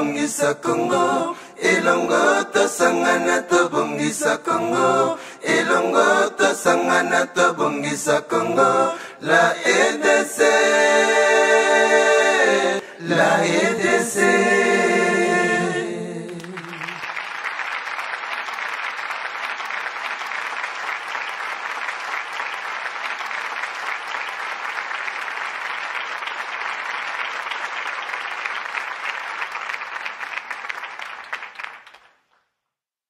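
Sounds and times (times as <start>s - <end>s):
crowd applause: 16.3s - 32.2s.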